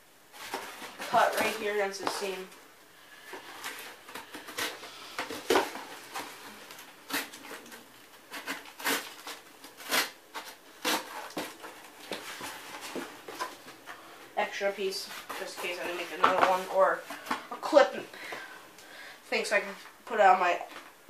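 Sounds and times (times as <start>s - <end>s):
cardboard rustling: 0.3s - 17.6s
knife rasping through cardboard: 8.3s - 13.0s.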